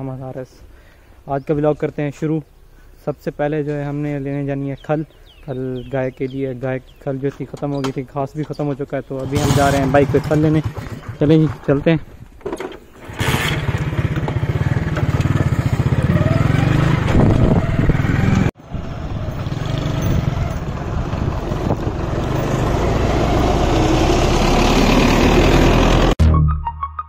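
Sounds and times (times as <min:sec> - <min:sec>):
road noise: 0:00.0 - 0:26.2
motorcycle engine running: 0:09.2 - 0:11.3, 0:13.0 - 0:24.6
rushing wind: 0:13.1 - 0:26.0.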